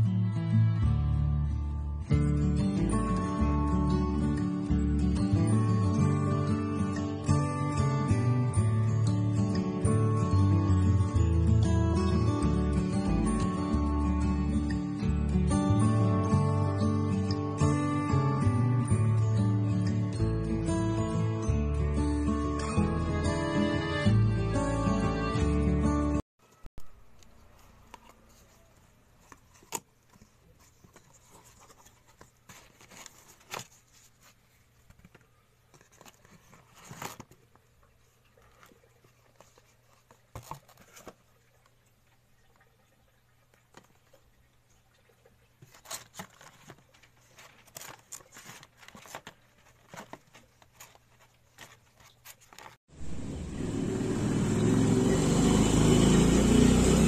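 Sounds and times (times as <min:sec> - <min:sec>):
cardboard box rustling and clicks: 0:29.2 - 0:37.6, 0:38.6 - 0:41.2, 0:45.6 - 0:52.8
loud steady rumbling: 0:53.0 - 0:56.1.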